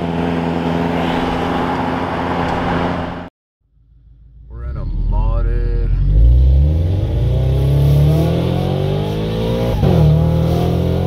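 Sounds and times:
car engine accelerating hard: 4.6 - 11.0.

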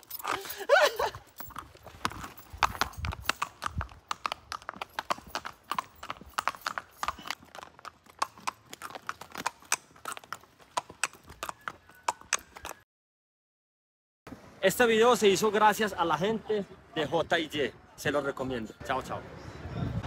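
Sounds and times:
horse hooves on paved road: 0.0 - 12.8.

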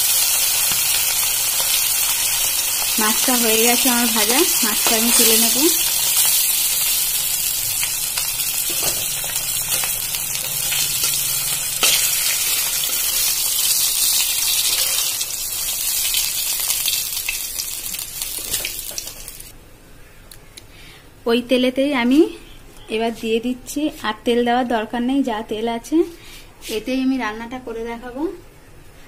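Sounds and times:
fish sizzling in hot oil: 0.0 - 19.5.

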